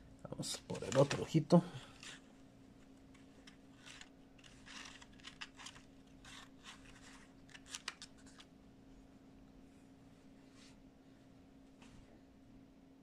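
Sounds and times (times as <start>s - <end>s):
paper rustling: 0.7s - 2.3s, 3.1s - 8.5s.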